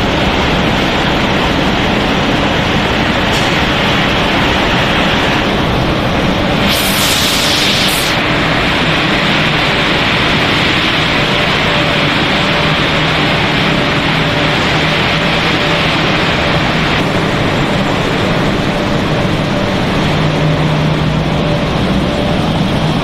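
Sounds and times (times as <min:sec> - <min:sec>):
production machinery running: 0:00.0 - 0:23.0
burst of hiss: 0:06.6 - 0:08.2.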